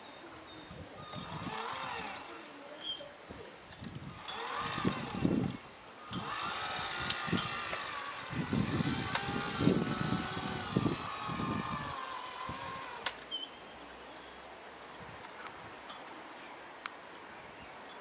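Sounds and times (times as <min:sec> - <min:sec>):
electric motor and gearbox whining: 0:01.0 - 0:02.7, 0:03.8 - 0:13.4
low rumbling: 0:04.0 - 0:13.0.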